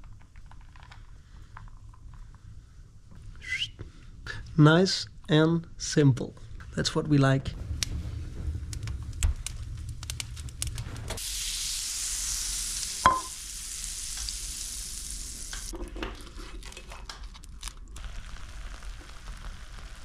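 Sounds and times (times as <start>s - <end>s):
wood fire rumble with crackles: 0.0s - 20.0s
fat sizzling in frying pan: 8.7s - 15.8s, 18.0s - 20.0s.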